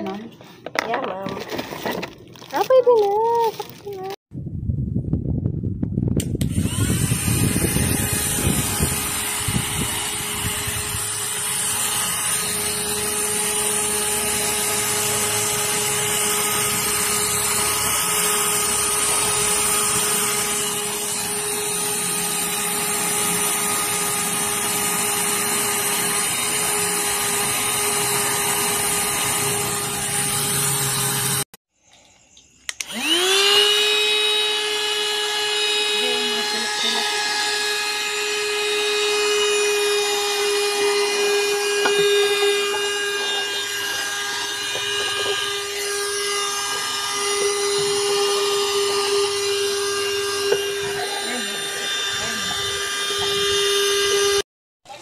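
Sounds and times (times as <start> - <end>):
mini vacuum cleaner motor whine: 6.2 - 31.5, 32.1 - 54.4.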